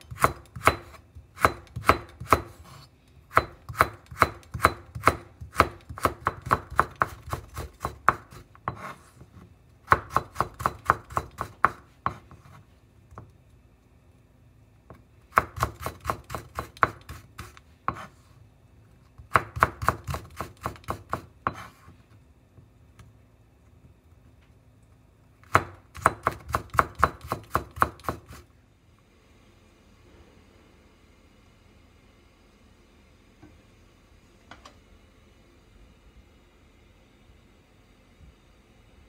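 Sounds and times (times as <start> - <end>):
knife chopping on wooden board: 0.1 - 9.0, 9.9 - 12.6, 15.3 - 18.1, 19.3 - 21.8, 25.4 - 28.4.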